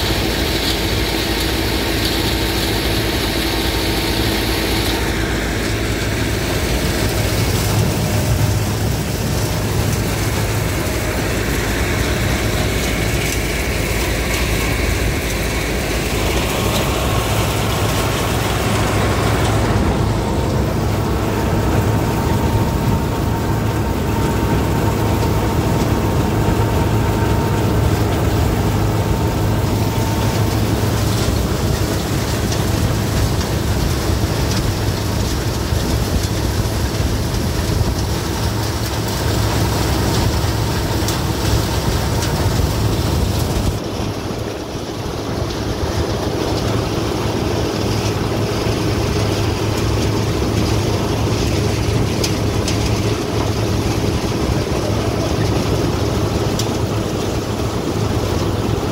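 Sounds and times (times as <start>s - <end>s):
low engine rumble: 0.0s - 58.9s.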